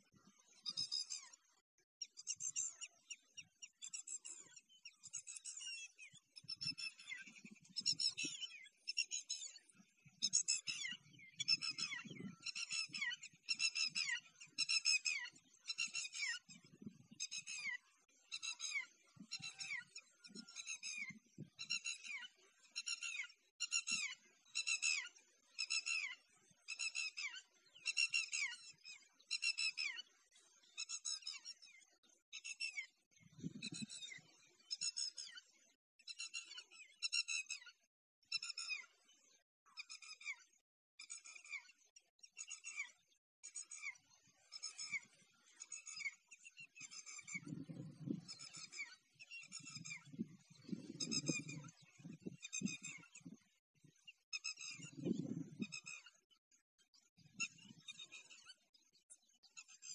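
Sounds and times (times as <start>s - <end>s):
bird chirping call: 2.0s - 30.0s, 39.7s - 53.4s.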